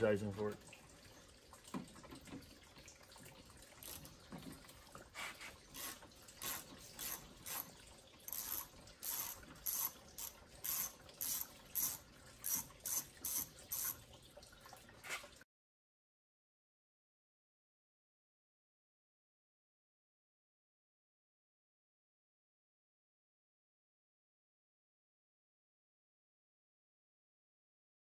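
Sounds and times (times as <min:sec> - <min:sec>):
ratchet wrench clicking: 0:08.3 - 0:14.0.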